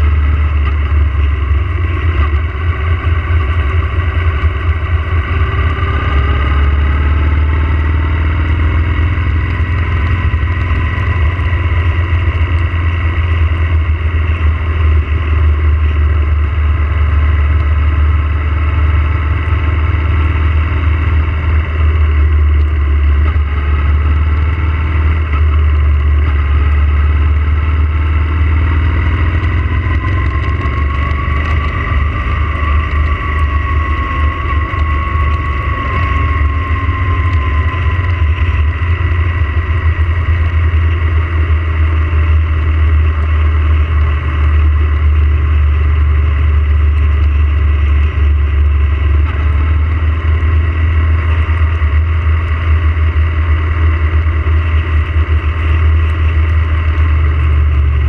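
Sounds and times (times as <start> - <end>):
faint whine: 0.0 - 58.0
motorcycle engine running: 0.0 - 58.0
wind rumble on microphone: 0.0 - 58.0.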